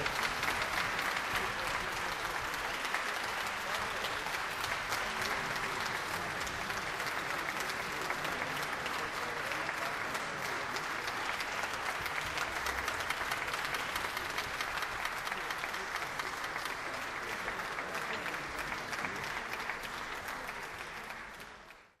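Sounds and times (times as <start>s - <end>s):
audience applauding: 0.0s - 22.0s.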